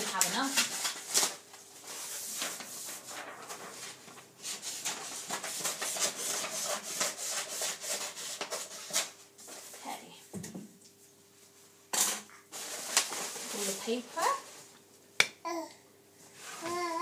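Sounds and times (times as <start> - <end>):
paper rustling and crinkling: 0.0 - 9.8, 12.5 - 14.6.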